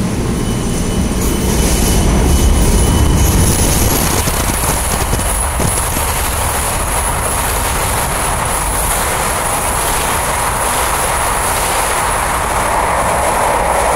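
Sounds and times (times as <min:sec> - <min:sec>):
train wheels rolling: 0:00.0 - 0:13.9.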